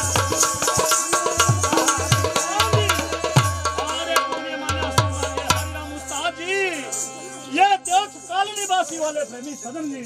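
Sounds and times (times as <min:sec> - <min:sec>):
tabla strokes: 0:00.0 - 0:06.0
harmonium notes: 0:00.0 - 0:10.0.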